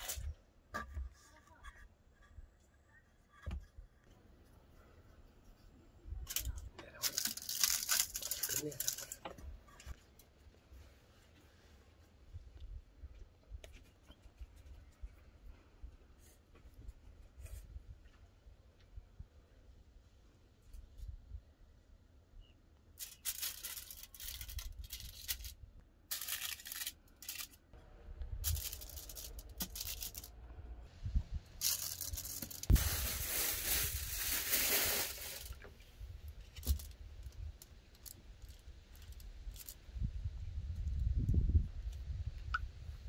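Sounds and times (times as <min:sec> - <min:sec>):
aluminium foil crinkling: 0:06.3 - 0:09.8, 0:23.0 - 0:27.6, 0:28.4 - 0:30.3, 0:31.6 - 0:35.7.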